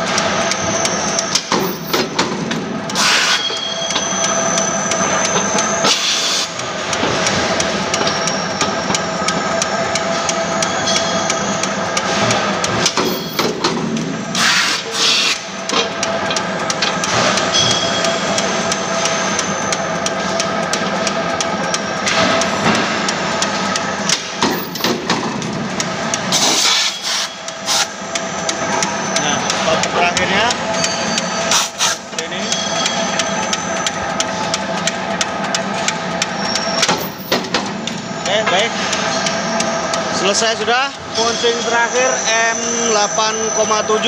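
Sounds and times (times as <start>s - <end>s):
punch press humming: 0.0s - 44.0s.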